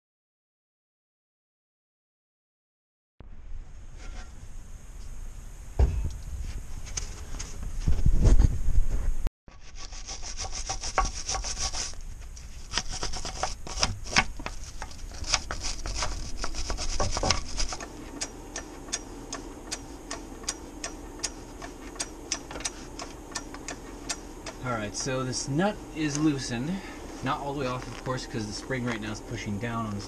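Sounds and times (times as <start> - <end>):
ratchet wrench scraping: 9.5 - 29.4
ratchet wrench clicking: 17.6 - 25.1.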